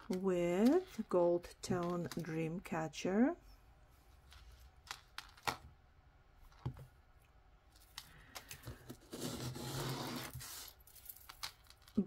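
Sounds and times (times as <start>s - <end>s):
metal jewelry clinking: 10.7s - 12.0s.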